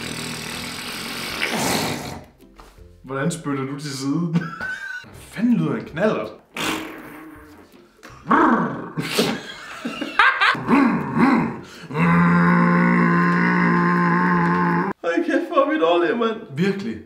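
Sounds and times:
men imitating engine with mouths: 0:00.0 - 0:02.4, 0:06.5 - 0:09.5, 0:10.2 - 0:15.0
laughter: 0:04.3 - 0:05.1, 0:09.2 - 0:10.6.

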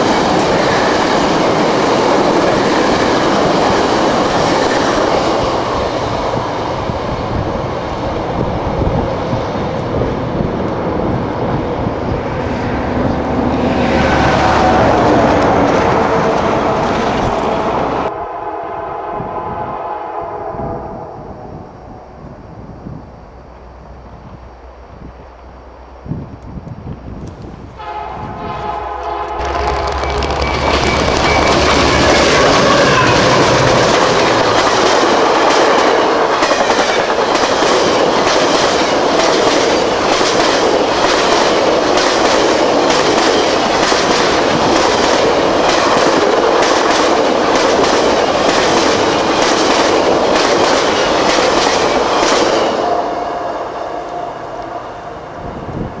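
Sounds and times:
train wheels clickety-clack: 0:00.0 - 0:06.6, 0:28.6 - 0:52.8
locomotive rumbling past: 0:00.0 - 0:56.0
train horn chord: 0:13.8 - 0:22.3, 0:27.8 - 0:34.7, 0:52.6 - 0:55.9.

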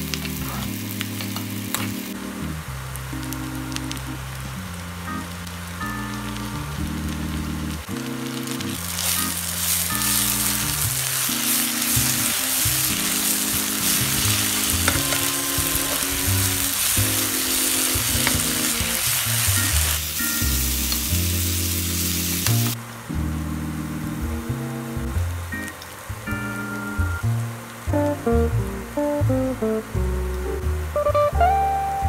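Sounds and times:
onions sizzling in oil: 0:00.0 - 0:02.2, 0:05.4 - 0:22.8.

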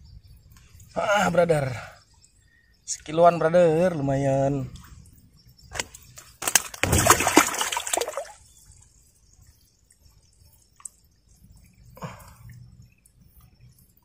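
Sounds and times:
water dripping: 0:04.7 - 0:14.0
water splashing and sloshing: 0:05.7 - 0:14.0.

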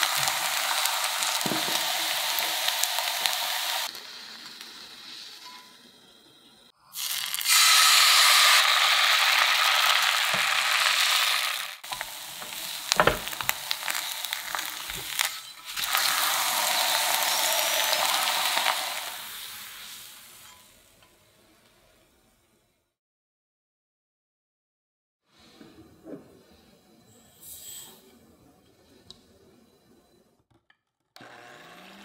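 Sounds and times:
batter sizzling in a pan: 0:00.0 - 0:06.2, 0:07.0 - 0:21.0
spatula scraping a pan: 0:10.3 - 0:19.5.

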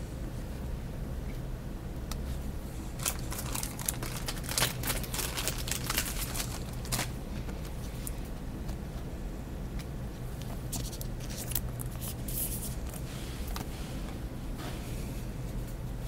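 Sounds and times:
low steady hum: 0:00.0 - 0:16.0
cards rustling and clicking: 0:03.0 - 0:08.8, 0:09.8 - 0:13.7.

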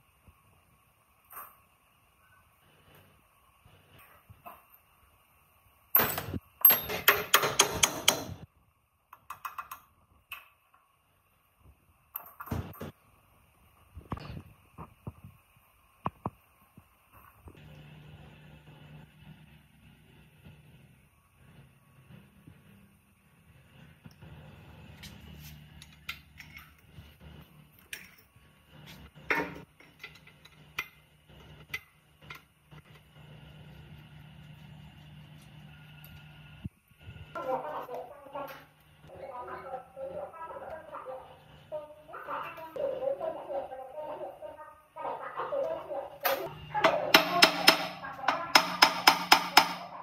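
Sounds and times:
hammer tapping on metal: 0:06.0 - 0:08.4, 0:46.5 - 0:50.0
wrench clinking on metal: 0:06.0 - 0:08.4, 0:25.8 - 0:26.9.

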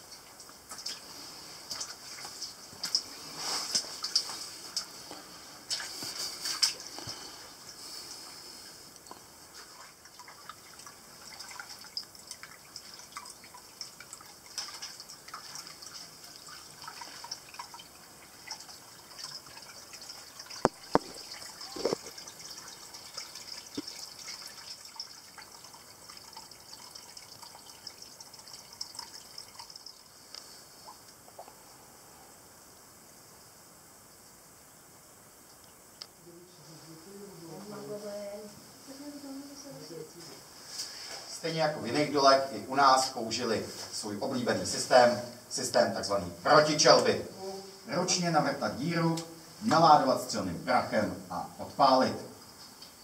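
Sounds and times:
water dripping: 0:00.0 - 0:31.7, 0:35.4 - 0:36.2, 0:40.7 - 0:47.2.

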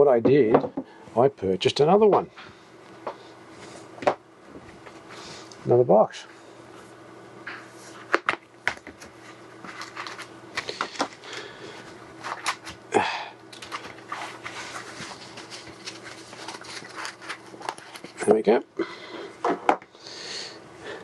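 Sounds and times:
low steady hum: 0:00.0 - 0:21.0
cardboard box and paper rustling: 0:13.6 - 0:18.3.

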